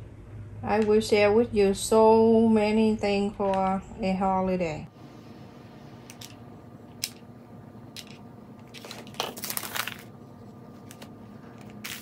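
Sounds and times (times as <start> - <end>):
paper bag rustling and crinkling: 8.7 - 12.0.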